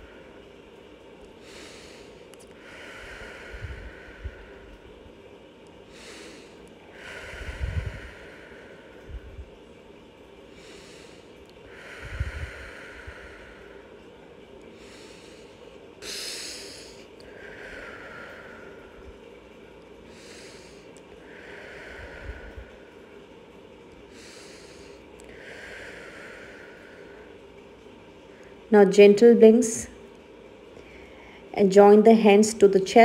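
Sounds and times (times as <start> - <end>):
woman breathing through nose: 1.4 - 4.9, 5.9 - 9.5, 10.5 - 14.0, 14.7 - 19.2, 20.1 - 23.1, 24.1 - 27.4, 30.8 - 31.5.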